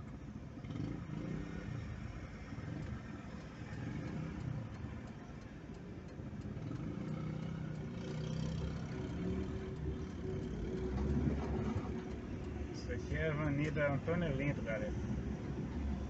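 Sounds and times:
car engine: 0.0 - 16.0.

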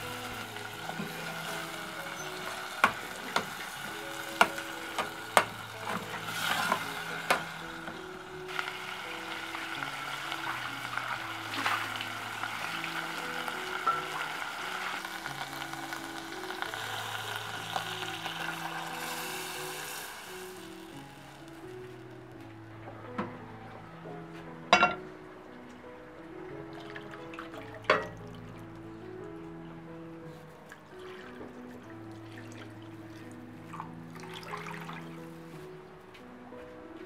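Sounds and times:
vegetables sizzling in oil: 0.0 - 21.7
soft background music: 0.0 - 37.0.

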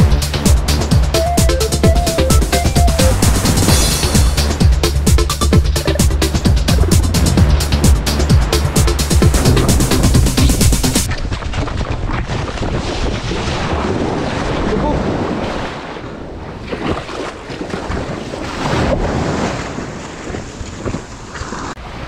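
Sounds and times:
board splashing and knocking: 5.2 - 14.6
wind buffeting microphone: 6.4 - 21.8
surf washing over wet sand: 6.9 - 11.1, 12.3 - 22.0.

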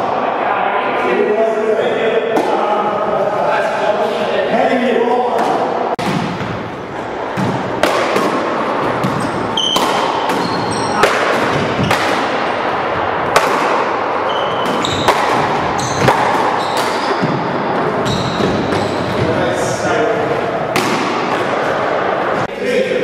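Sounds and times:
ball struck by paddle: 7.4 - 12.3
sneaker squeaks on hardwood floor: 9.0 - 12.1, 14.2 - 19.4.

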